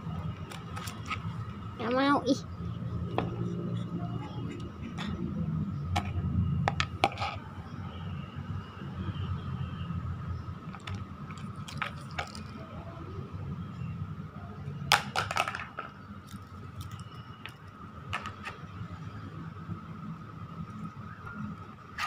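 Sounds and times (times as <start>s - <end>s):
plastic plate clattering on stones: 14.9s - 15.9s.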